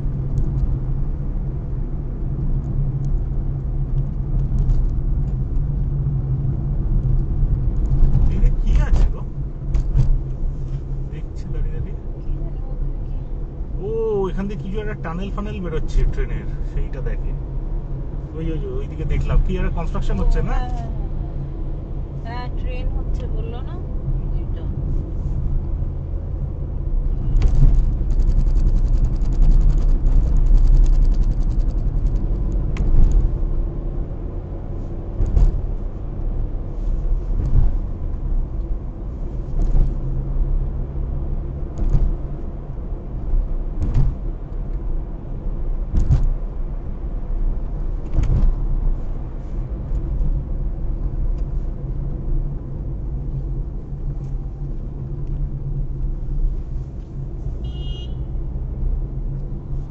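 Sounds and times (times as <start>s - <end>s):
car engine and tyre rumble: 0.0s - 59.9s
fast fine rattle: 27.8s - 32.3s.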